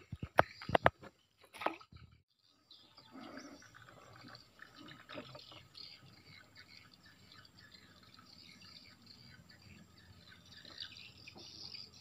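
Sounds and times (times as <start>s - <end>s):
water lapping against wooden boat: 2.8s - 11.9s.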